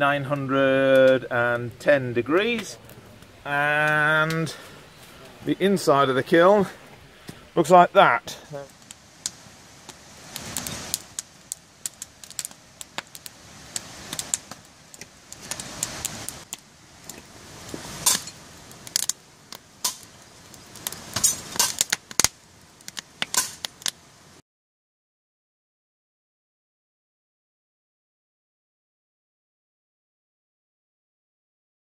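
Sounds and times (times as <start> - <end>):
wood fire crackling: 0.0 - 24.4
rushing of flame: 0.7 - 24.4
sharp pops: 8.5 - 24.0.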